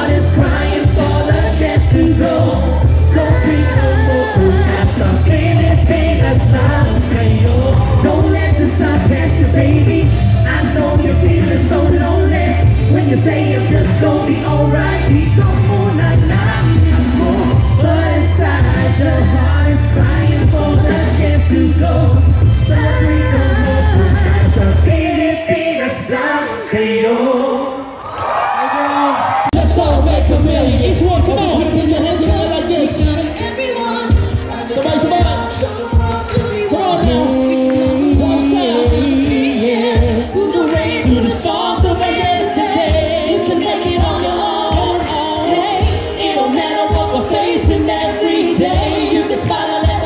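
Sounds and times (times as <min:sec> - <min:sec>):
hip-hop backing track heavy bass: 0:00.0 - 0:25.8, 0:29.5 - 0:33.5
rapping on microphones: 0:00.0 - 0:28.0, 0:28.8 - 0:50.0
hip-hop beat with heavy kick drum: 0:29.6 - 0:50.0.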